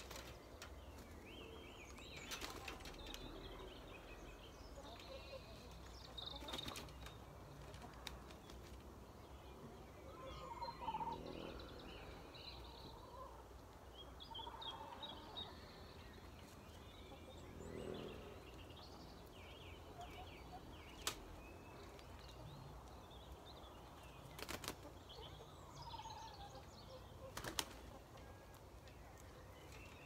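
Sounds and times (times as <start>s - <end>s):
wings fluttering: 0.0s - 1.1s, 2.2s - 3.4s, 6.3s - 8.8s, 24.2s - 25.0s, 27.3s - 27.9s
small birds chirping: 0.0s - 30.0s.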